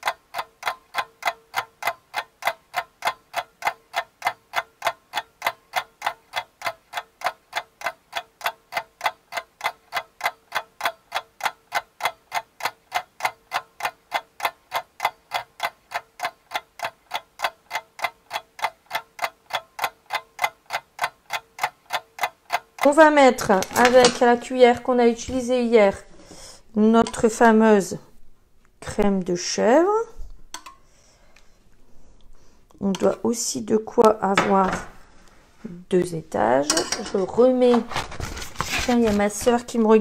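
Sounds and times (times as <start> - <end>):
steady ticking: 0.0 - 28.0
faint steady hum: 0.0 - 40.0.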